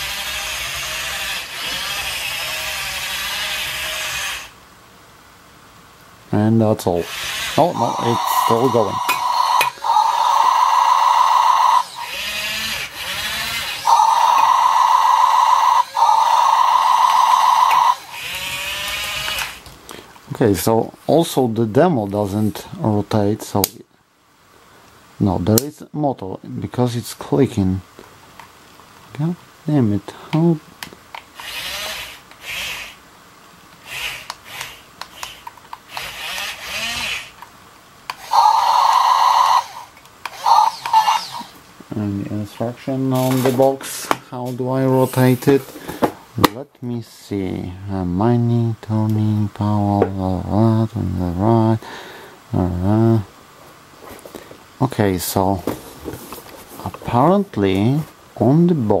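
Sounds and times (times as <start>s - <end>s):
small motors moving toy arm: 0.0s - 4.6s, 7.0s - 19.6s, 31.4s - 33.0s, 33.8s - 37.4s, 38.1s - 41.6s
steady buzzing tone: 0.0s - 4.6s
loud warbling electronic tone: 7.5s - 18.4s.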